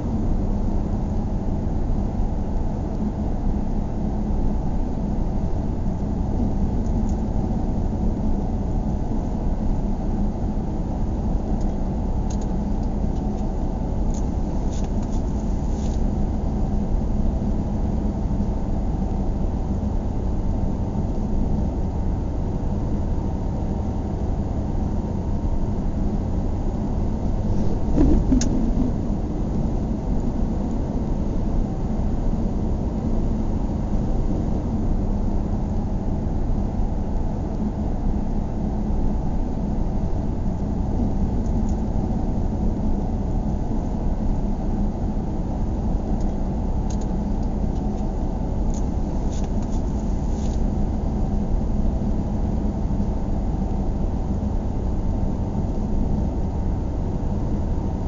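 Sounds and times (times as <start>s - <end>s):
car driving on paved road: 27.2s - 31.8s.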